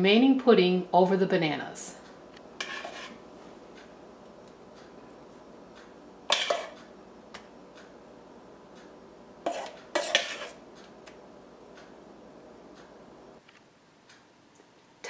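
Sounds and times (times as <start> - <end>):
utensil scraping a metal bowl: 2.6 - 3.2, 9.4 - 10.6.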